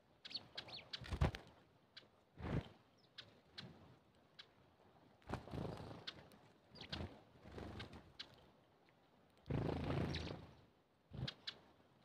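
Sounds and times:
sparrows chirping: 0:00.2 - 0:01.0, 0:10.1 - 0:10.4.

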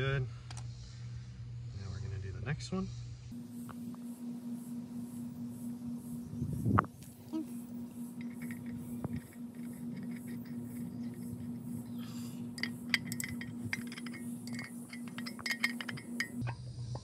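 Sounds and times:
steady low hum: 0:00.0 - 0:17.0
metal wrench clinking on fittings: 0:08.2 - 0:16.4.

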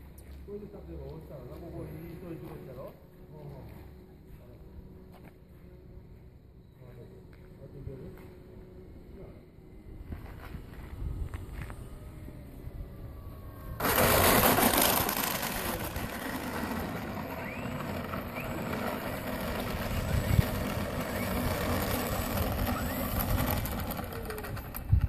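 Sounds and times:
wheels rolling on asphalt: 0:00.0 - 0:25.0
electric motor and propeller whirring: 0:01.4 - 0:25.0
loud rushing noise: 0:13.8 - 0:23.9.

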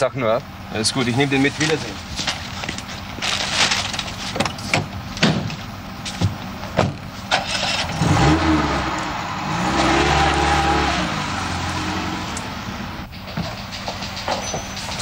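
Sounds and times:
van engine starting and revving: 0:00.0 - 0:15.0
van door shutting: 0:04.3 - 0:07.9.

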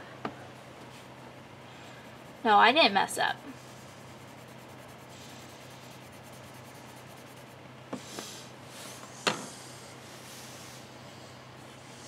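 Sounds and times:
pen scratching on paper: 0:03.5 - 0:07.6.

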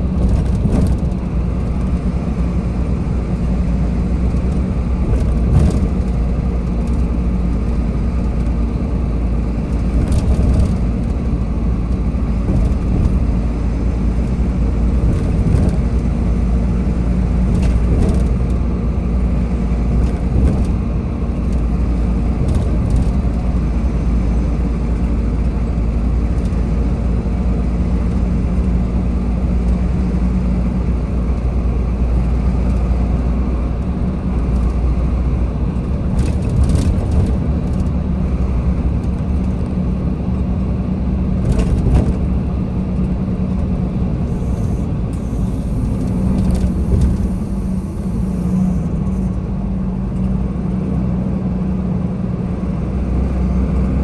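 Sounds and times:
traffic engines humming: 0:00.0 - 0:54.0.

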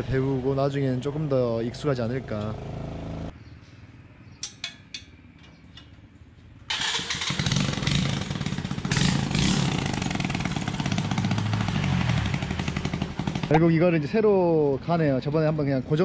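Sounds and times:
motorcycle engine revving: 0:00.0 - 0:03.4, 0:06.7 - 0:13.7
small motorcycle engine running: 0:02.0 - 0:03.3, 0:07.2 - 0:13.6.

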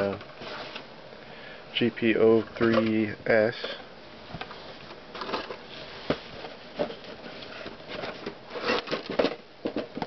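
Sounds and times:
cardboard boxes knocking and rustling: 0:05.2 - 0:10.0.

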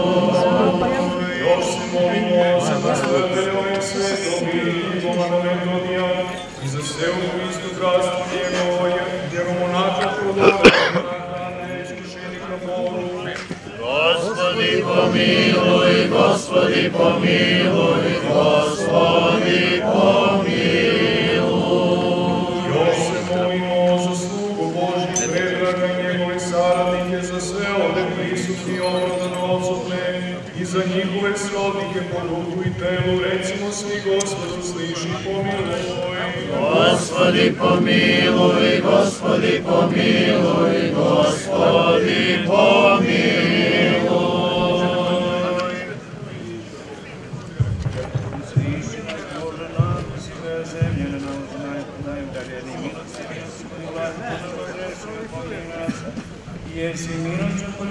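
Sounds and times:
men singing liturgical chant: 0:00.0 - 0:46.4, 0:48.6 - 0:55.6
group of voices chanting: 0:13.8 - 0:24.5.

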